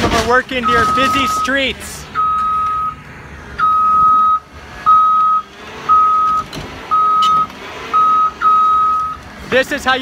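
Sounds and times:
backup alarm beeping: 0.6s - 3.0s, 3.6s - 9.2s.

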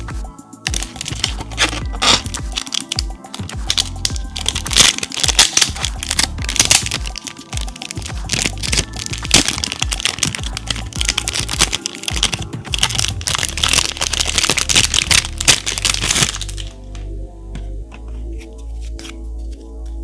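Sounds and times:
background music: 0.0s - 20.0s
packaging crinkling: 0.7s - 16.8s.

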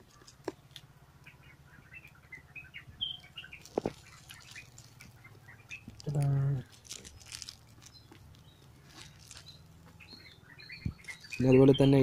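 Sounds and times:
small birds chirping: 0.0s - 12.0s
plastic film crinkling: 3.2s - 10.2s, 10.8s - 12.0s.

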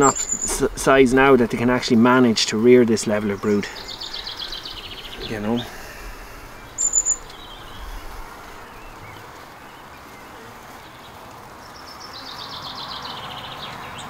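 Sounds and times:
honeybees humming: 0.0s - 14.0s
songbird trill: 0.0s - 14.0s.

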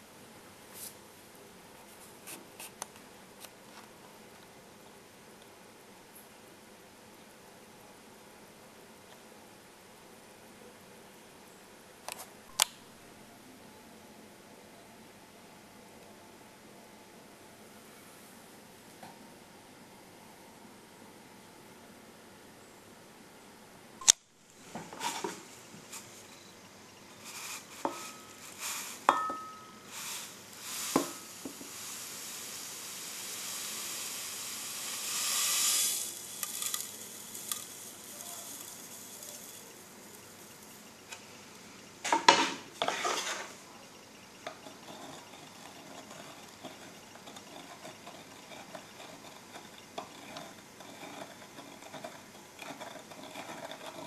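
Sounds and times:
hiss: 27.1s - 43.6s
stirring in glass jug: 27.2s - 40.8s, 44.5s - 54.0s
clinks against glass: 29.1s - 29.8s.

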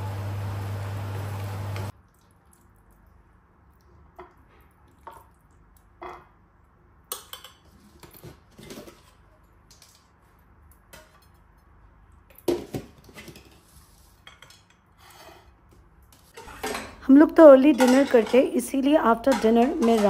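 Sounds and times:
spoon scraping ceramic plate: 16.3s - 17.0s.

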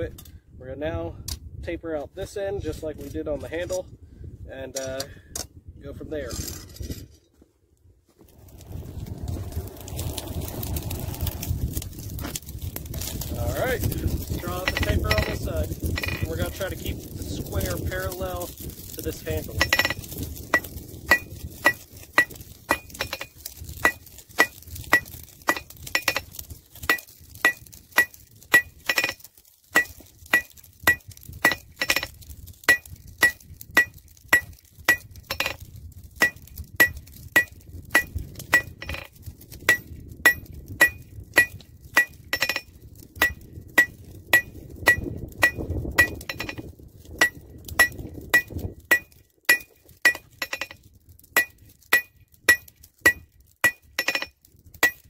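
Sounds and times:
anvil ringing clink: 51.4s - 55.0s.

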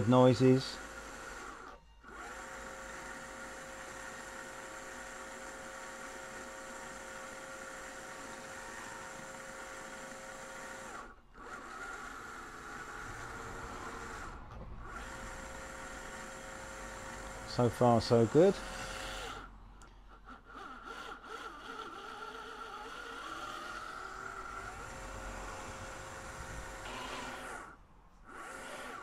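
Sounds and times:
gears turning: 0.0s - 29.0s
small electric motor whining: 0.0s - 29.0s.

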